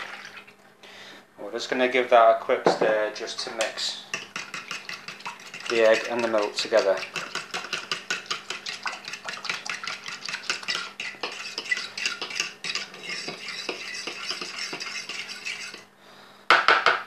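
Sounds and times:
whisk tapping plastic bowl: 0:02.6 - 0:15.8.

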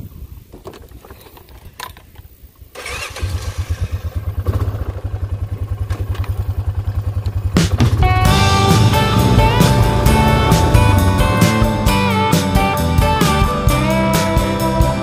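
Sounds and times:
engine starting and idling: 0:02.8 - 0:12.1.

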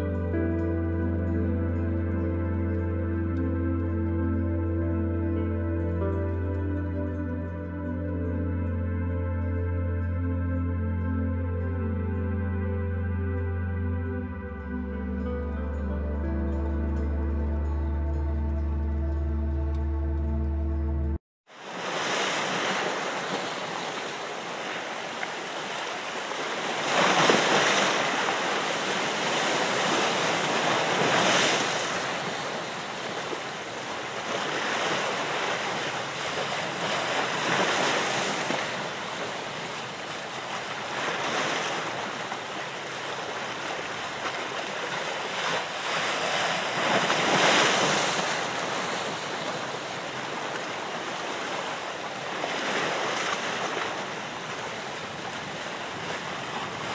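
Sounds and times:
ocean waves washing in: 0:21.5 - 0:56.9.

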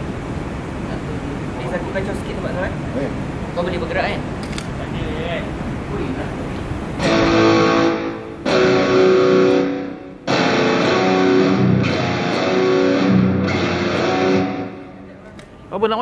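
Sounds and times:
electric guitar chords ringing: 0:07.0 - 0:15.2.

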